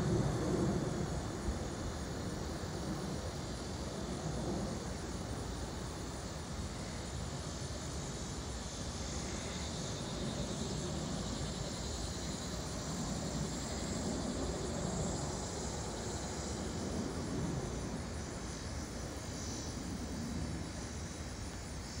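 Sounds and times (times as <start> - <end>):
distant airliner passing overhead: 0.0 - 22.0.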